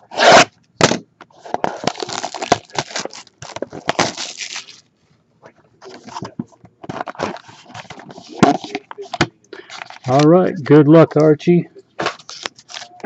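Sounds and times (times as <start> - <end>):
plastic shrink wrap crinkling: 1.6 - 4.9, 12.0 - 13.0.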